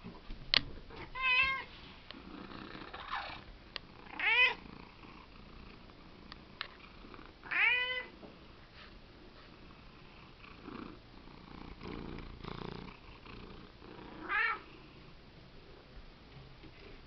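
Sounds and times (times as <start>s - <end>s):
cat meowing: 1.0s - 1.7s, 4.1s - 4.6s, 7.4s - 8.1s, 14.2s - 14.6s.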